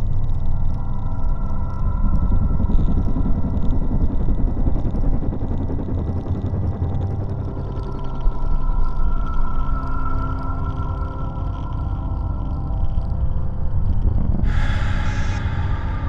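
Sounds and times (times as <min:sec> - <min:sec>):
low rumbling drone: 0:00.0 - 0:16.0
high sustained tones: 0:07.6 - 0:13.6.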